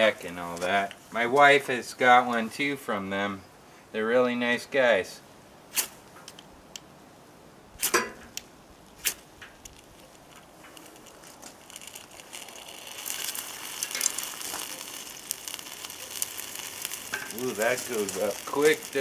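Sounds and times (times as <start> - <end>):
dry grass crackling fire: 0.0 - 2.8, 7.7 - 19.0
ferro rod rasping strikes: 7.8 - 8.4.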